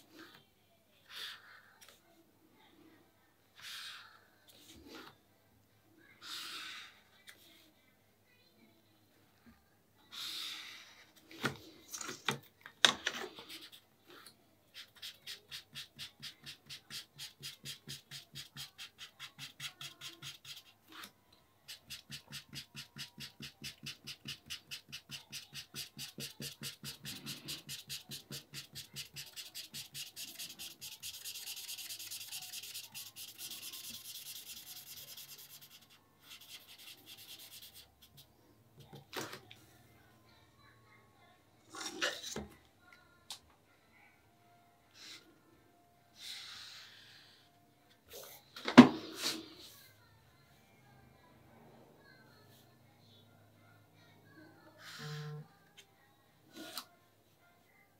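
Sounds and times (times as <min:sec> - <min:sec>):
marker scribbling on paper: 0:13.4 - 0:13.8, 0:14.7 - 0:21.1, 0:21.7 - 0:39.0.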